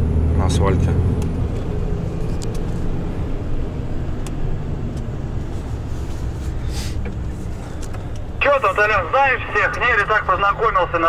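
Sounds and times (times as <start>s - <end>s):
truck engine drone: 0.0s - 11.0s
short hiss: 6.6s - 7.1s.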